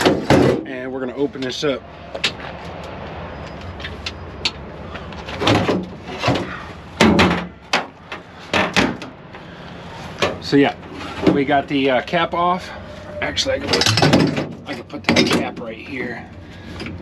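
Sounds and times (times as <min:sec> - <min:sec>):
metal doors clanking shut: 0:13.4 - 0:15.7.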